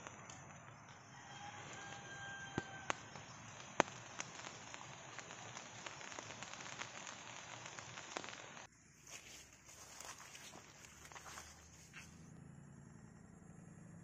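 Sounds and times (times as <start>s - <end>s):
light rain pattering on leaves: 0.0s - 12.2s.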